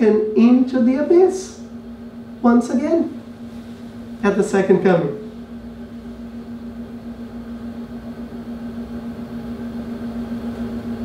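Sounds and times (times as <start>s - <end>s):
steady droning hum: 0.0s - 11.0s.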